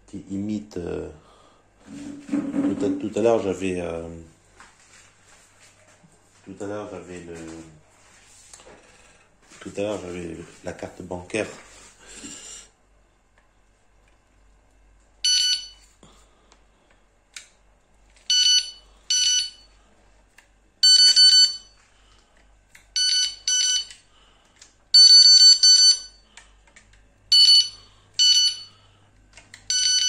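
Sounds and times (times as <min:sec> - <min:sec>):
bite alarm bleeps: 0:27.3 - 0:28.8.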